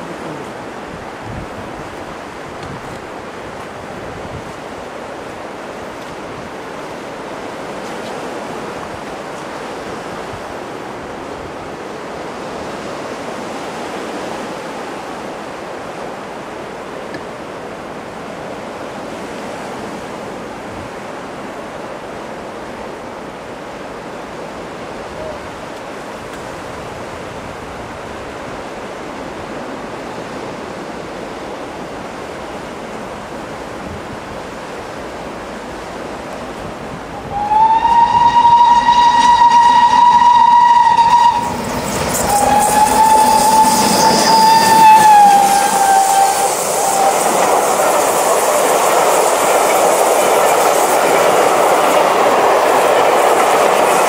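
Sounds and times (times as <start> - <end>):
sea surf: 0.0 - 54.0
wind on microphone: 0.3 - 4.9, 36.3 - 54.0.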